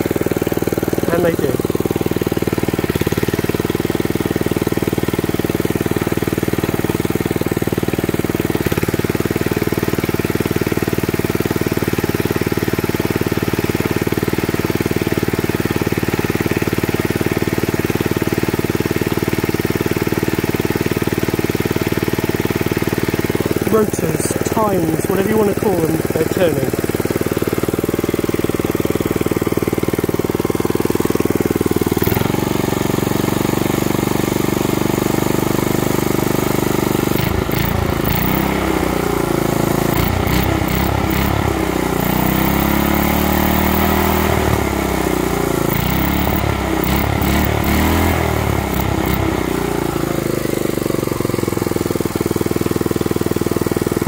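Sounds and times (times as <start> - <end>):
single-cylinder engine revving: 0.0 - 6.2, 22.4 - 54.0.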